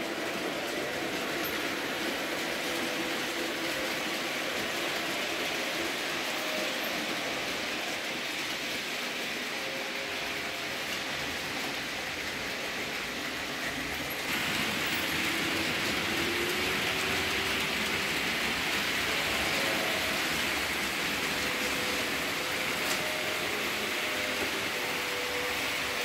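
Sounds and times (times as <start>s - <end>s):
faint locomotive motor whine: 0.0s - 26.0s
model train wheels rolling: 0.0s - 26.0s.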